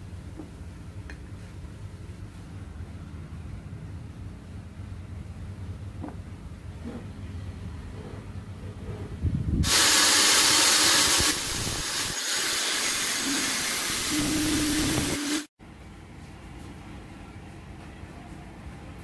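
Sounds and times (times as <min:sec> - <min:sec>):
drill grinding metal shaft: 0:09.6 - 0:15.5.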